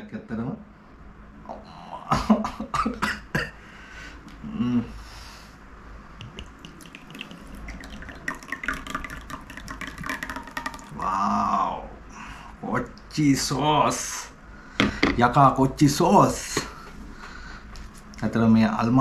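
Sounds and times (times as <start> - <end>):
person humming: 4.4 - 5.0, 10.9 - 11.9
sauce glugging from bottle: 6.2 - 11.0.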